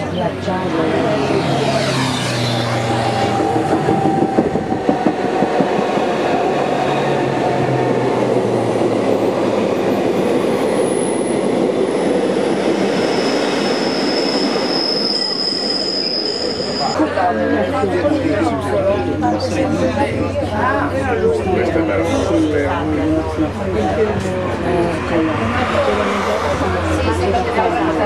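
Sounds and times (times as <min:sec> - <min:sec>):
train wheels rumbling on rail: 0:00.4 - 0:17.0
high wheel squeal: 0:12.8 - 0:17.0.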